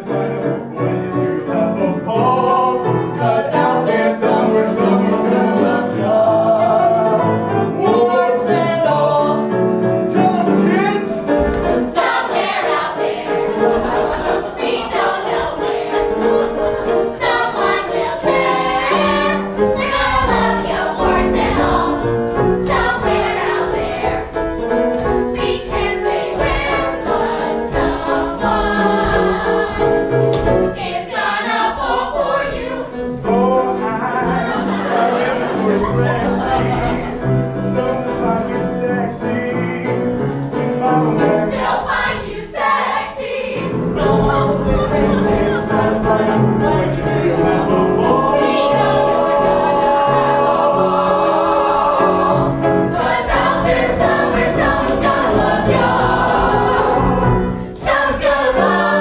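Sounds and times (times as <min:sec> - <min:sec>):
ensemble singing with band: 0:25.4 - 0:59.0.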